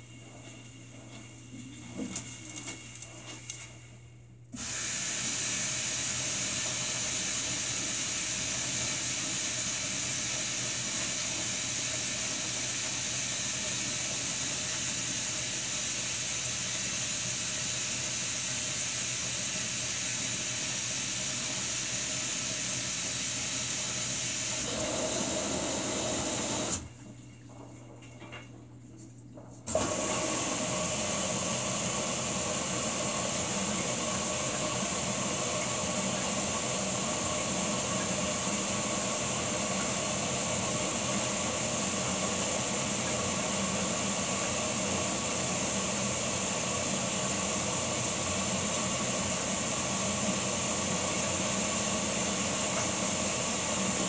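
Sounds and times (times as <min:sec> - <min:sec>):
washing machine low hum: 0:00.0 - 0:54.0
water spraying into washer drum: 0:04.6 - 0:27.2, 0:29.7 - 0:54.0.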